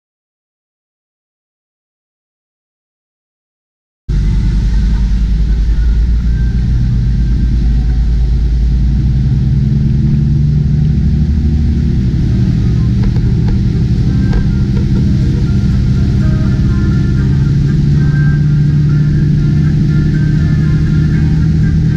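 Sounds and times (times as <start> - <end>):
speedboat engine drone: 4.1 - 21.9.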